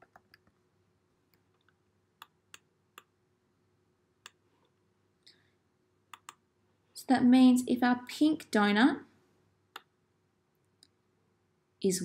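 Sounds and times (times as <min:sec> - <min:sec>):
computer mouse clicks: 0:06.1 - 0:06.4, 0:09.7 - 0:09.9.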